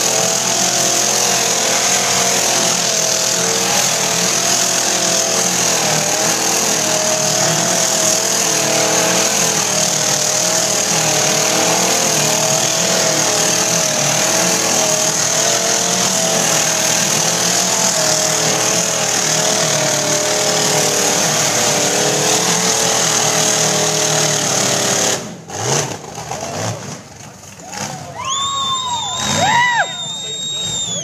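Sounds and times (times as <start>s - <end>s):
buggy engine at high revs: 0.0s - 31.0s
tyres spinning on dirt: 0.0s - 31.0s.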